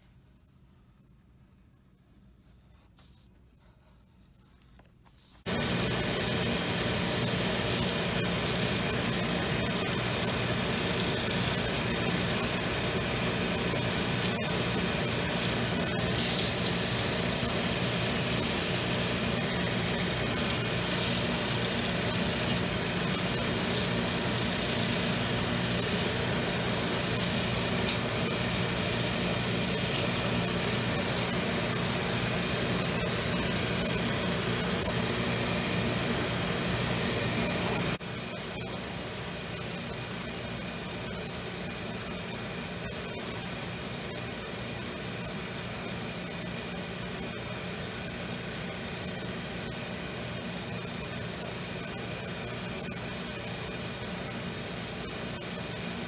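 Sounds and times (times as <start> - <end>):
finishing machine running: 5.5 - 41.8.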